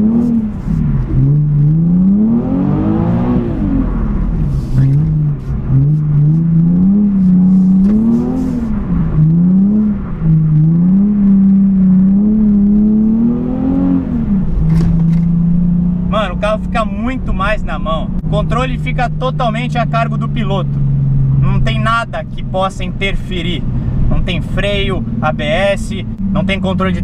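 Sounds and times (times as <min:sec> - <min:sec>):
car engine revving: 0:00.0 - 0:27.0.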